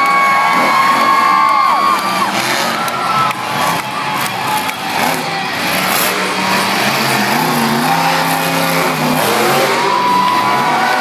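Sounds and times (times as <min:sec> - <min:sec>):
monster truck engine revving: 0:00.0 - 0:11.0.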